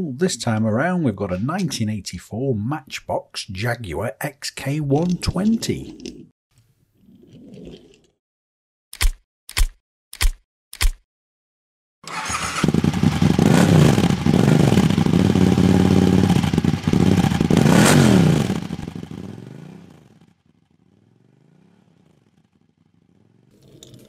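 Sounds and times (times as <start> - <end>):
vehicle engine revving: 12.1 - 20.2.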